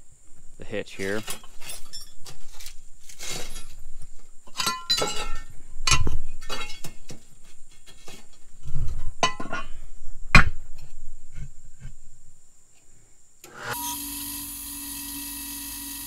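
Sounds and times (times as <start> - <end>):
metallic clinks and knocks: 1.2 - 9.8
dull thumps: 2.2 - 12.2.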